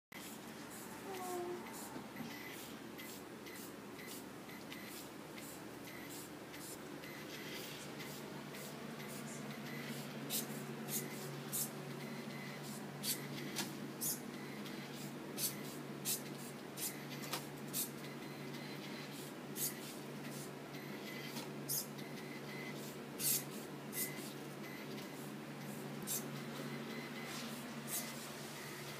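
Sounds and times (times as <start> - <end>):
electric motors humming: 0.2 - 3.7.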